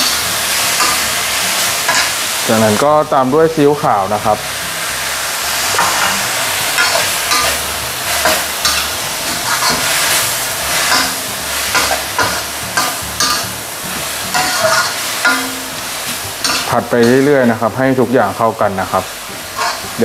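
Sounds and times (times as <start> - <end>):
vegetables sizzling in hot oil: 0.0 - 20.0
metal spatula scraping a wok: 4.9 - 17.5, 19.3 - 20.0.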